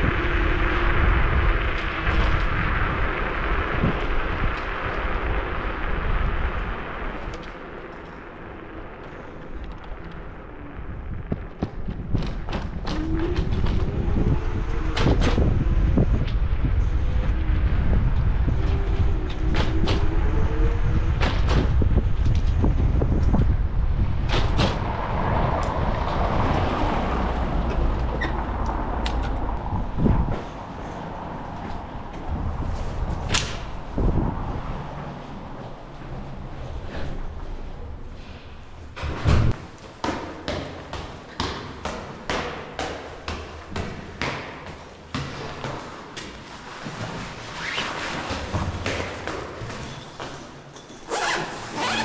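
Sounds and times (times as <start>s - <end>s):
wind buffeting microphone: 0.0s - 39.8s
road rumble: 0.0s - 52.0s.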